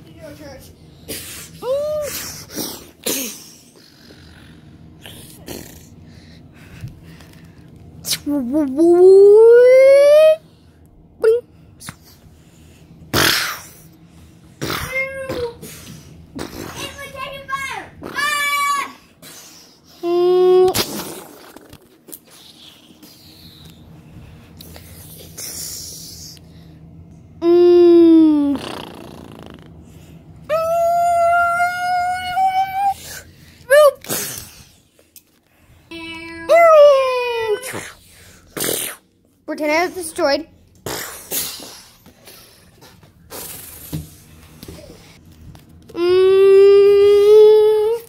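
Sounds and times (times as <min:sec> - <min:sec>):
child making mouth sound effects: 0:20.0 - 0:21.8, 0:27.4 - 0:29.7, 0:46.0 - 0:48.0.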